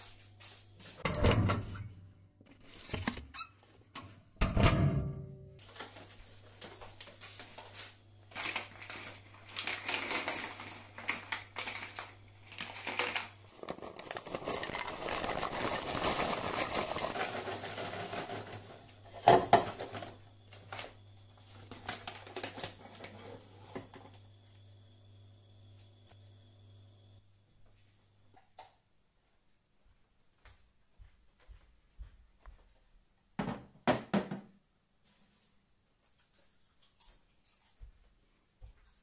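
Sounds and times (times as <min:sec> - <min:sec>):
paper bag crinkling: 0:05.6 - 0:23.4
popcorn pouring into a plastic bowl: 0:08.3 - 0:20.2.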